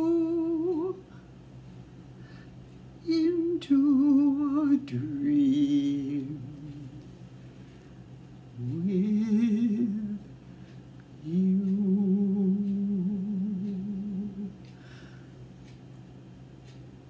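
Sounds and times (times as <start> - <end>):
person humming: 0.0 - 1.0, 8.6 - 10.3, 11.2 - 14.7
low steady hum: 0.0 - 17.0.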